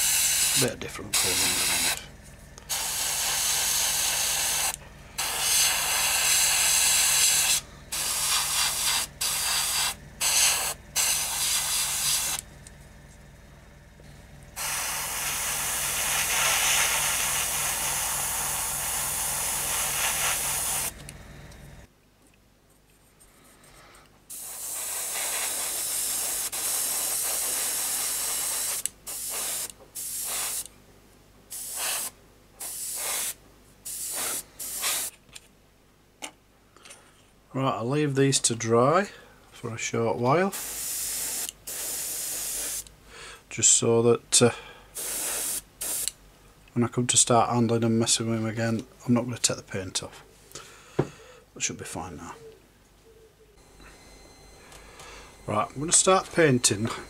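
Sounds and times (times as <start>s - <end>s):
airbrush spraying hiss: 0.0s - 12.5s, 14.5s - 21.2s, 24.3s - 30.7s, 31.5s - 35.1s, 40.5s - 42.9s, 44.9s - 46.1s
compressor hum: 0.0s - 46.7s, 47.6s - 57.0s.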